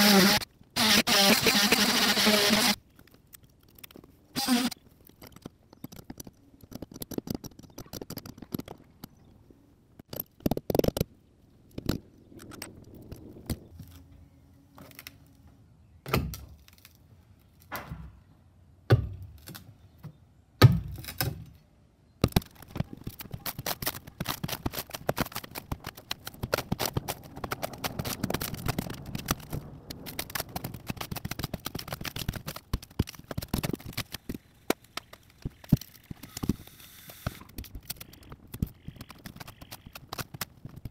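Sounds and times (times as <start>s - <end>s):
wet wood cracking: 16.3s - 17.7s, 22.2s - 36.3s, 37.5s - 40.9s.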